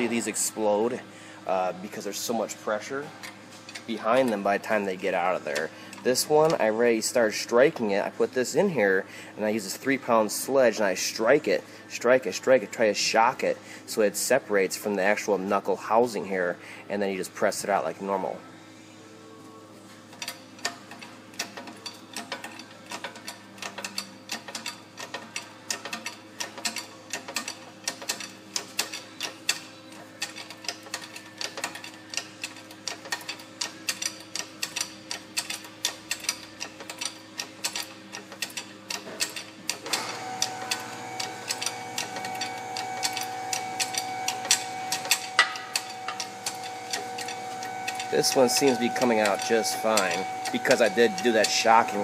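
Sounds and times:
metal ticking and cracking: 41.4 - 52.0.

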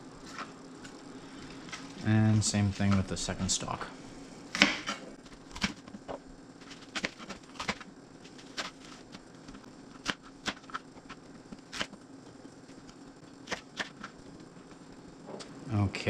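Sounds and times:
knife chopping on plastic board: 4.5 - 5.0.

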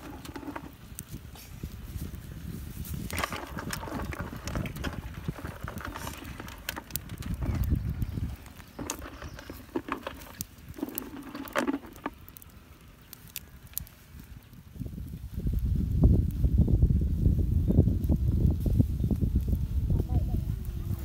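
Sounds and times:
clam shells clacking on grill: 3.1 - 12.6.

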